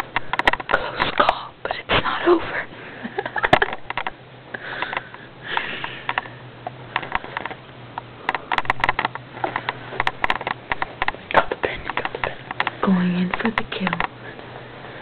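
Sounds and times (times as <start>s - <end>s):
small sharp clicks and taps: 0.0s - 1.3s, 3.5s - 4.2s, 4.8s - 14.2s
steady low hum: 0.0s - 15.0s
breathy puffs: 4.5s - 7.4s.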